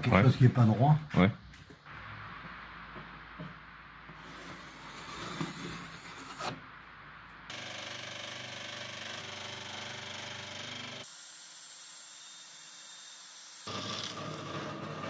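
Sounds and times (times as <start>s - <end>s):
scroll saw cutting: 4.2s - 6.6s, 7.5s - 15.0s.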